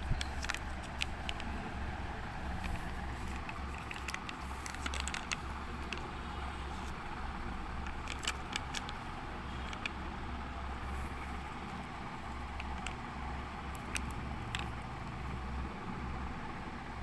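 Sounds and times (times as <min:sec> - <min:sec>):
steady low hum: 0:00.0 - 0:17.0
plastic packs crinkling: 0:02.6 - 0:06.1.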